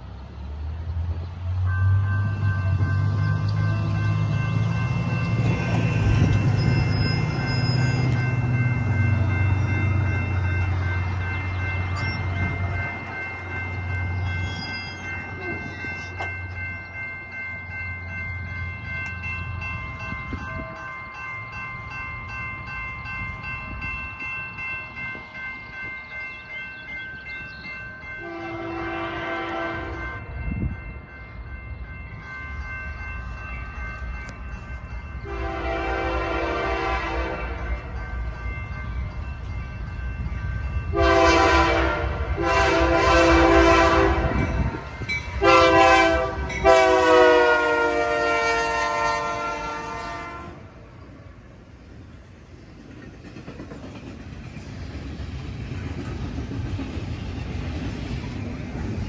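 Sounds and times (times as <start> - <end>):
railroad crossing bells ringing: 0.0 - 59.0
locomotive air horn blasts: 28.2 - 30.2, 35.2 - 37.7, 40.9 - 44.5, 45.4 - 50.7.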